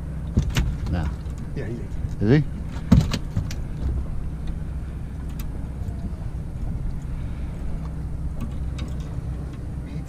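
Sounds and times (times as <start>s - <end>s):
outboard motor idling: 0.0s - 10.0s.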